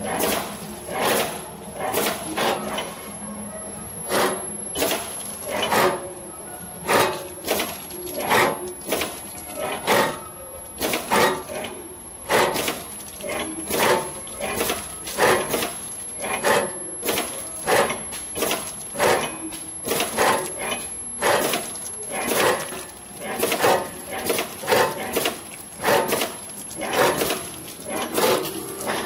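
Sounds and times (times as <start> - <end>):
machine knocking and clattering: 0.0 - 2.9, 4.1 - 6.1, 6.8 - 29.0.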